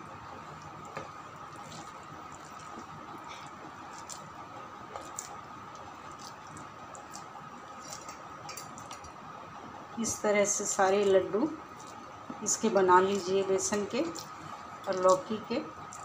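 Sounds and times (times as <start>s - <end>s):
wet dough squishing: 0.0s - 9.8s, 10.4s - 16.0s
faint hum: 0.0s - 16.0s.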